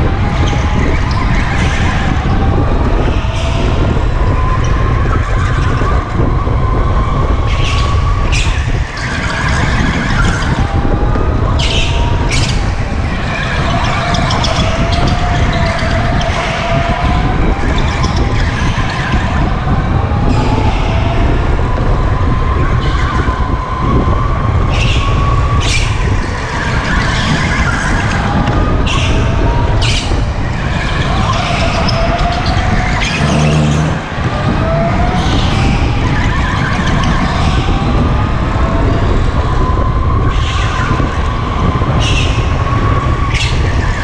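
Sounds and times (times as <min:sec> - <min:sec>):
wind rumble on microphone: 0:00.0 - 0:44.0
go-kart motor whine: 0:30.9 - 0:37.4.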